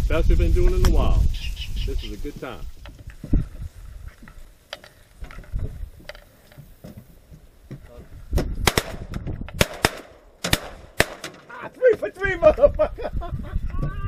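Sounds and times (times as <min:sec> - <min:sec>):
shotguns firing: 0:08.6 - 0:11.5.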